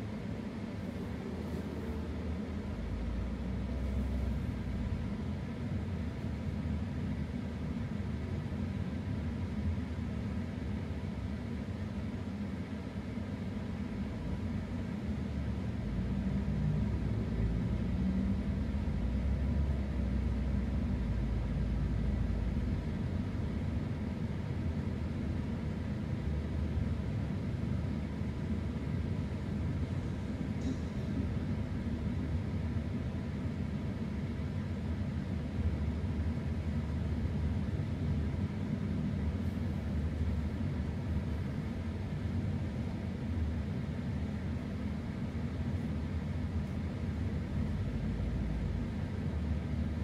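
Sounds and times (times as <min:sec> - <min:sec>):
car driving on road: 0:00.0 - 0:08.2, 0:13.9 - 0:32.9.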